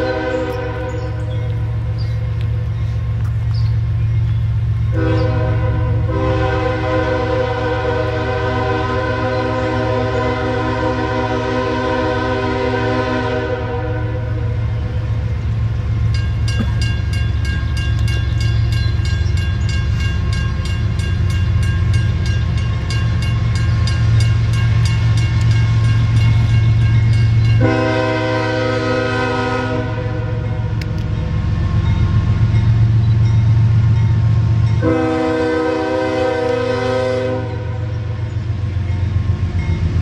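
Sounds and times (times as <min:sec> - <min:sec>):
locomotive air horn: 0:00.0 - 0:01.3, 0:04.9 - 0:15.0, 0:27.6 - 0:30.9, 0:34.8 - 0:38.2.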